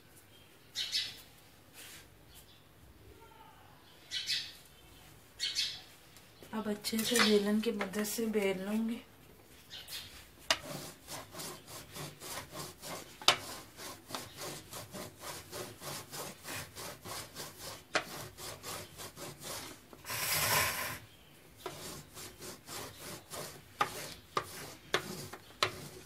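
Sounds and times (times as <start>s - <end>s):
rolling pin rasping on dough: 10.4s - 26.0s.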